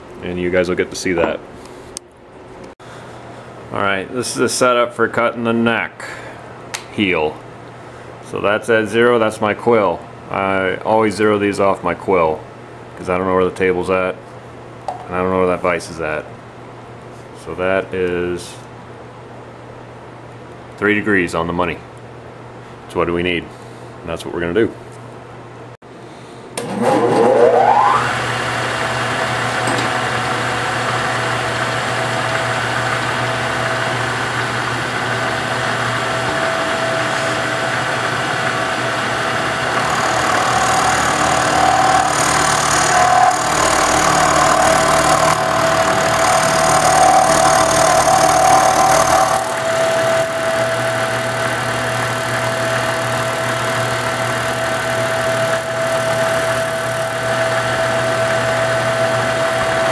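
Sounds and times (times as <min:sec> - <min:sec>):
milling machine cutting wood: 0:26.6 - 0:59.9.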